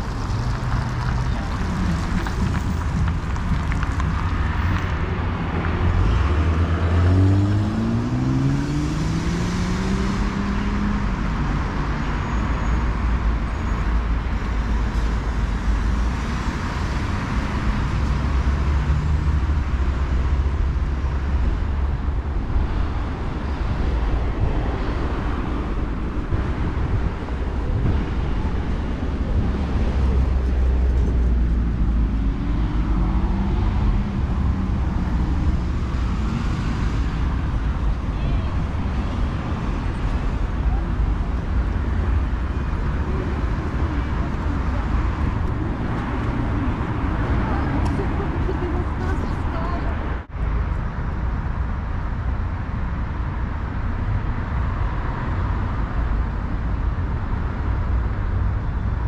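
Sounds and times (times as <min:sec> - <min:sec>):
vehicle engine accelerating: 0:00.0 - 0:12.4
city road traffic: 0:00.0 - 0:59.0.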